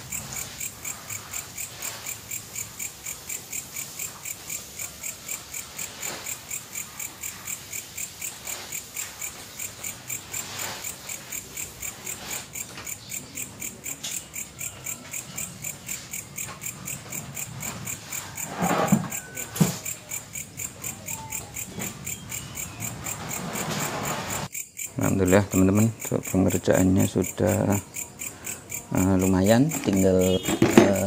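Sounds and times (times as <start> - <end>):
cricket chirping: 0.0 - 31.0
rustles from handling plant pots: 0.0 - 31.0
plant pot clatter: 29.4 - 31.0.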